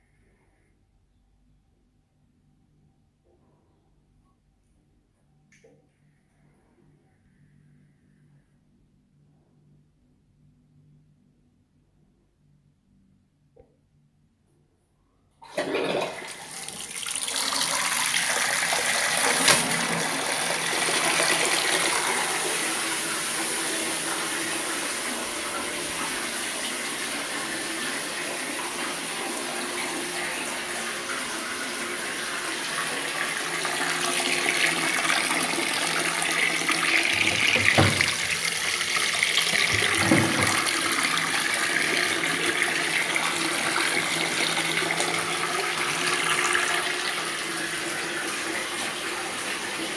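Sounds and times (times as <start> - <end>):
water gushing into tub: 15.4 - 49.9.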